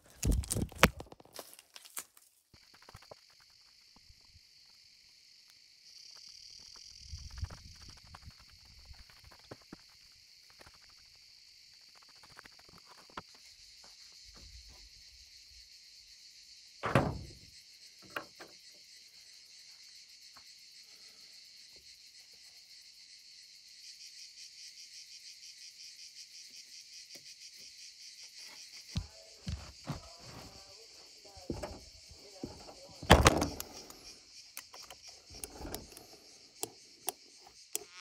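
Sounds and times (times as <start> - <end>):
insect chirring: 0.0 - 38.0
loud thump: 16.8 - 17.4, 33.1 - 33.6.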